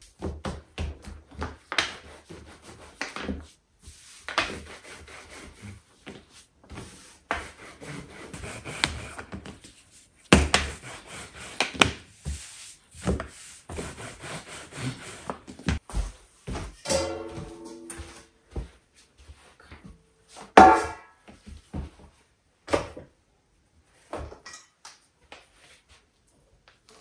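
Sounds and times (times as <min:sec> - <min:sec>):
scraping on wooden board: 0:06.7 - 0:09.5, 0:10.4 - 0:15.8.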